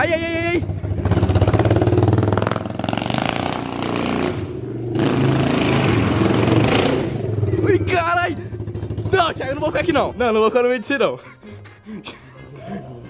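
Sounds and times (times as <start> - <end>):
quad bike engine revving: 0.0 - 10.3.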